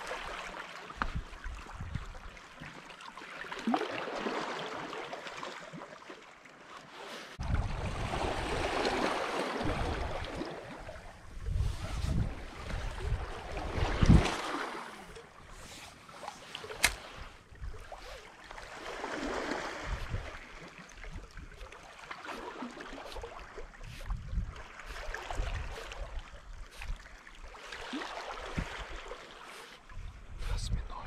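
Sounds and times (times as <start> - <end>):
seawater sloshing: 0.0 - 30.3
sharp click: 16.8 - 17.0.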